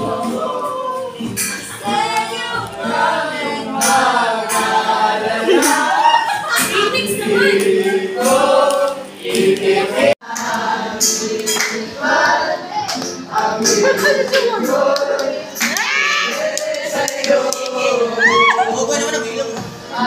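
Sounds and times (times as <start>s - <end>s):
strummed acoustic guitar: 0.0s - 15.8s
group of voices singing: 0.0s - 20.0s.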